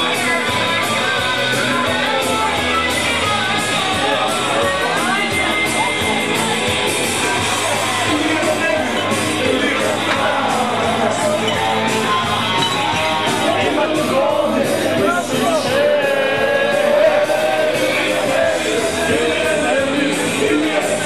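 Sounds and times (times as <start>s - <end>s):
loud rock music with singing: 0.0s - 21.0s
people shouting: 7.2s - 21.0s.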